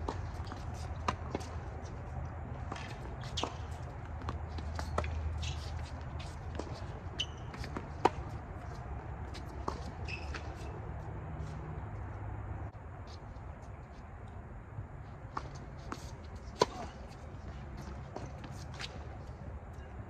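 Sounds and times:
racket hitting tennis ball: 0:00.0 - 0:01.9, 0:02.6 - 0:10.8, 0:15.3 - 0:19.2
tennis ball bouncing: 0:00.0 - 0:10.9, 0:15.3 - 0:19.2
footsteps and shoe scuffs: 0:00.0 - 0:12.3.

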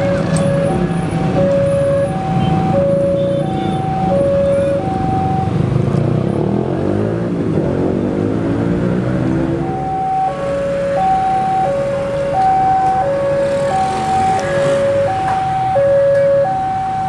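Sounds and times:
level crossing two-tone alarm: 0:00.0 - 0:05.6, 0:09.6 - 0:17.0.

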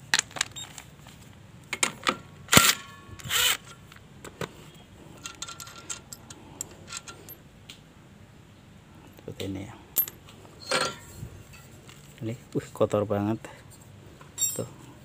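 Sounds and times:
light metal clicks and clinks: 0:10.0 - 0:11.7, 0:14.4 - 0:14.8.

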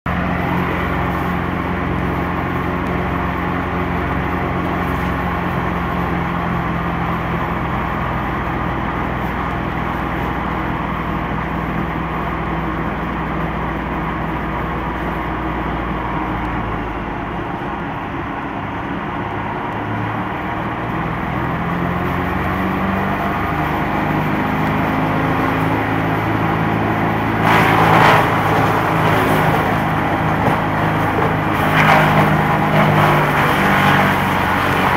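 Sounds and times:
wood chipper engine running: 0:00.1 - 0:34.9
branch fed into wood chipper: 0:27.3 - 0:34.9.

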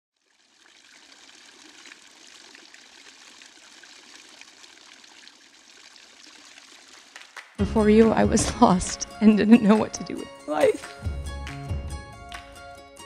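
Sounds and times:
fountain water trickling: 0:00.2 - 0:08.8.

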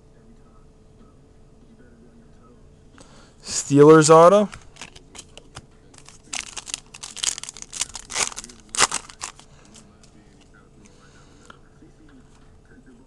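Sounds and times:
foil wrapper crinkling: 0:04.6 - 0:09.8.

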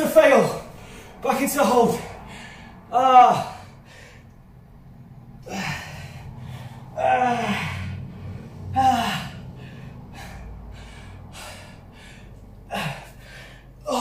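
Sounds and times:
man panting: 0:00.2 - 0:04.4, 0:05.3 - 0:14.0
man's strained exhalations: 0:05.4 - 0:14.0.

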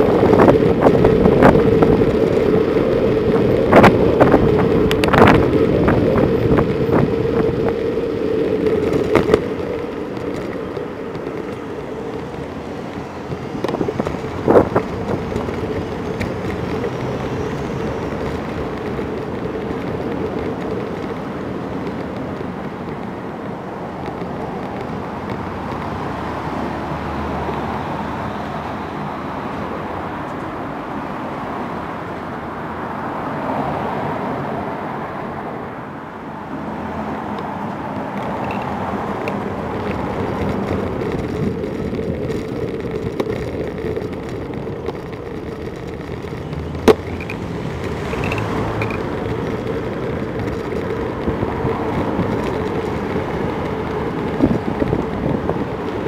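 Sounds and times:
bicycle tyre and road noise: 0:00.0 - 0:56.0
car traffic: 0:00.0 - 0:56.0.

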